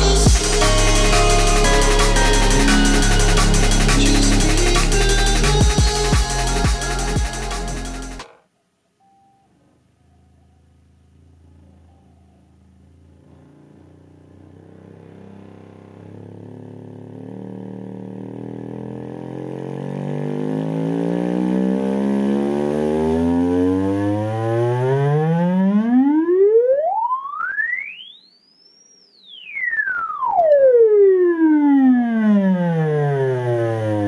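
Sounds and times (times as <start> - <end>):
loudspeaker playing low sine sweep: 0.0 - 8.2.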